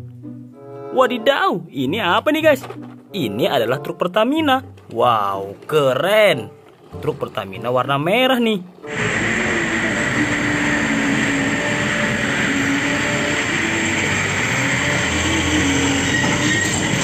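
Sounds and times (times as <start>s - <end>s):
high squeal-like tone: 8.9s - 17.0s
truck engine and tyre noise: 8.9s - 17.0s.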